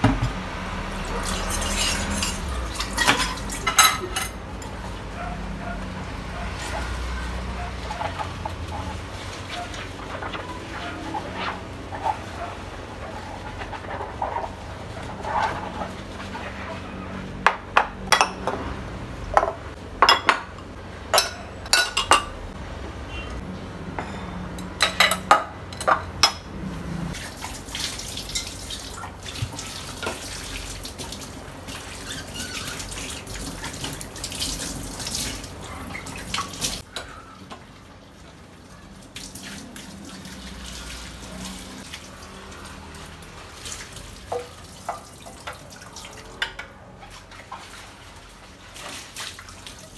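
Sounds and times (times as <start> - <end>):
dishes clinking: 1.2 - 4.7, 17.5 - 18.7, 19.4 - 22.4, 23.9 - 26.5
tap water running: 27.2 - 38.4, 39.0 - 49.9.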